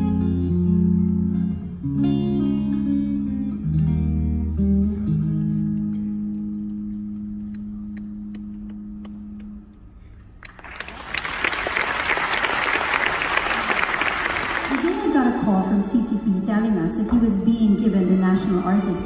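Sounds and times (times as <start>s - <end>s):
guitar playing chords: 0.0s - 10.1s
audience applause: 10.4s - 15.1s.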